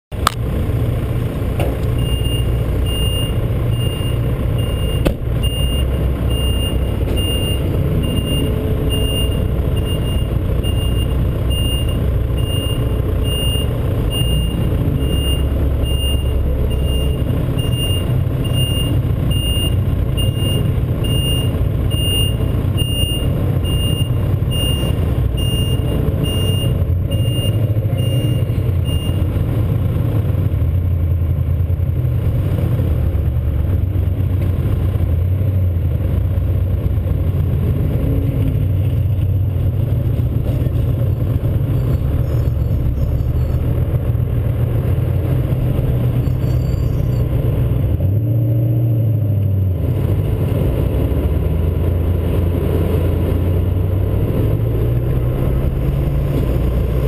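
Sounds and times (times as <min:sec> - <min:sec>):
vehicle engine rumbling: 0:00.0 - 0:57.0
reversing alarm beeping: 0:02.0 - 0:29.2.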